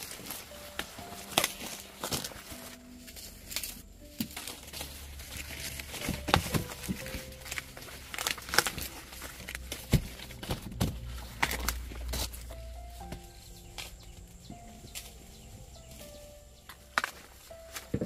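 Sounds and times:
dry corn stalks crackling: 0.0 - 18.0.

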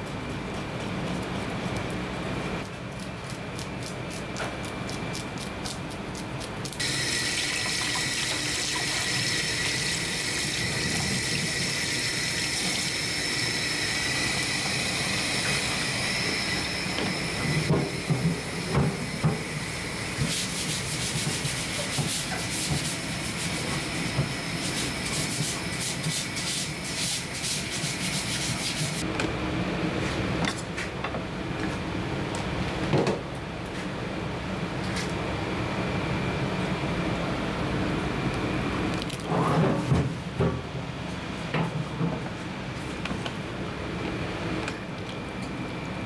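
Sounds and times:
tap water running into sink: 6.8 - 10.4.

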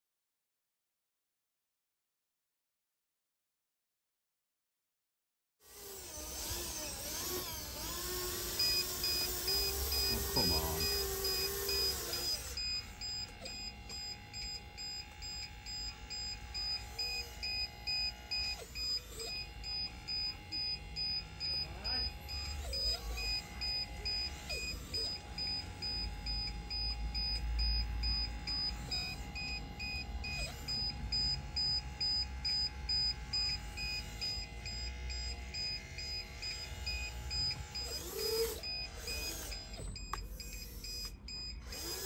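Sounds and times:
hydraulic pump whining: 5.7 - 42.0
short high electronic beeps: 8.6 - 42.0.

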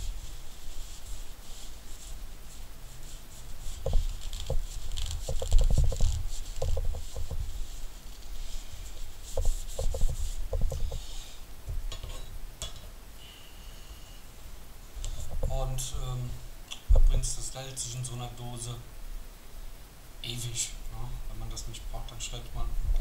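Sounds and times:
paper towel rubbing wood: 0.0 - 11.2.

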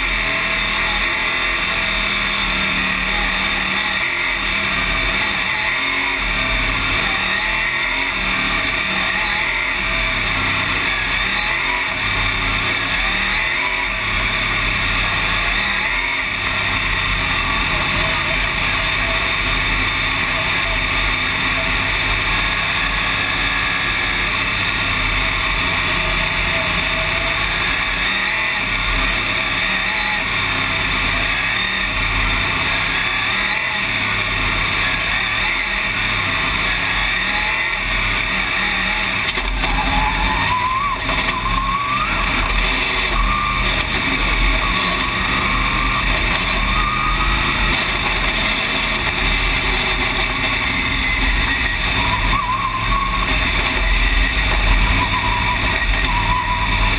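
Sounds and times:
other race cars: 0.0 - 56.9
race car engine running: 0.0 - 56.9.

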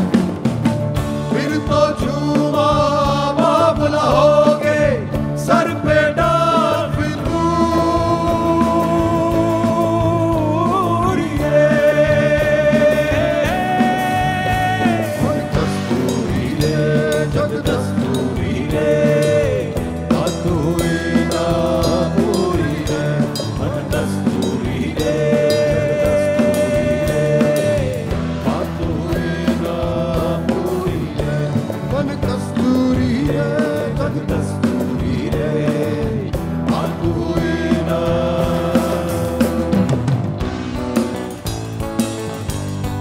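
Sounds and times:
live rock band playing: 0.0 - 43.0.

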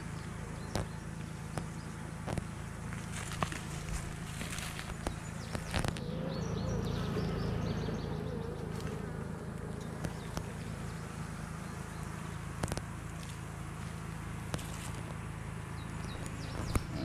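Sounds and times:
bees buzzing: 0.0 - 17.0
bee buzzing close by: 5.6 - 12.0.

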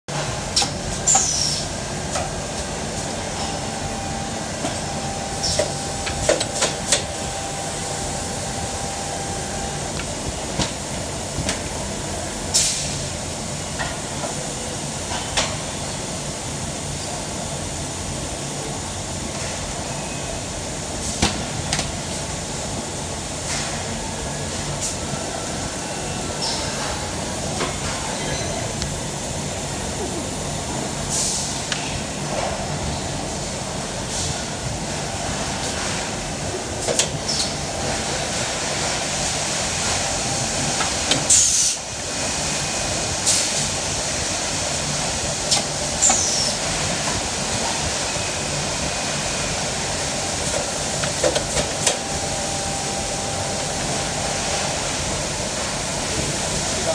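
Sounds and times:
factory machines running: 0.1 - 56.9
sharp clicks and hisses: 45.5 - 47.7.

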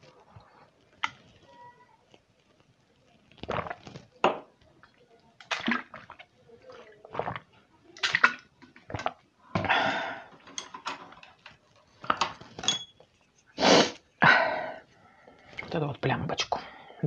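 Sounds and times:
gulps and slurps of liquid: 3.3 - 4.1, 5.4 - 10.0.

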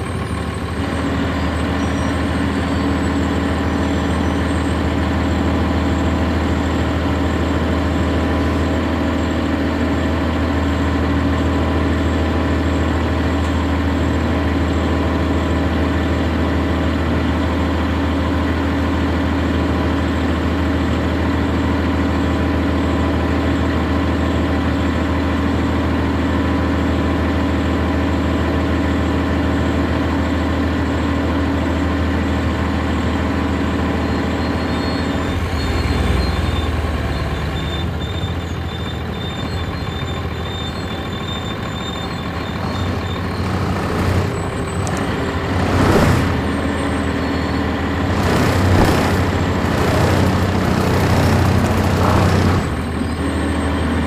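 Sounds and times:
bus diesel engine idling: 0.0 - 54.0
short loud noises: 48.1 - 53.0.

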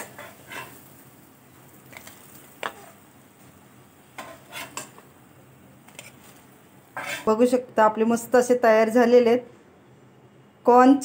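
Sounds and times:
metal spatula scraping a pan: 0.0 - 1.0, 4.1 - 5.0, 5.9 - 7.5
oil sizzling: 0.0 - 7.6.

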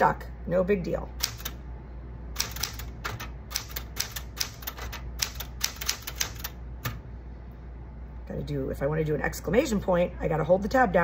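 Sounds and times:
typewriter keys clacking: 1.2 - 1.6, 2.4 - 7.0.

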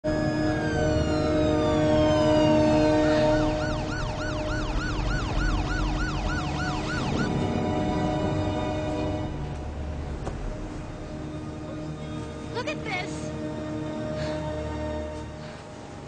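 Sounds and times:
emergency vehicle siren: 0.0 - 9.2
low music drone: 0.0 - 16.0.

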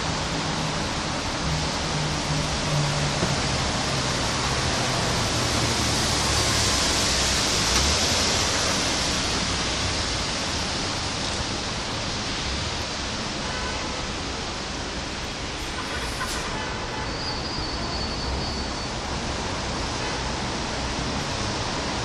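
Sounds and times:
rain falling on leaves: 0.0 - 16.9.

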